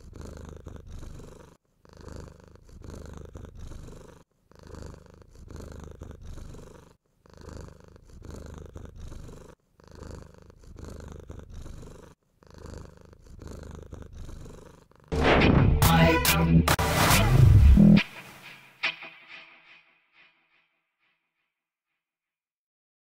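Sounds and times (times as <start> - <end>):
cat purring: 0.0 - 15.2.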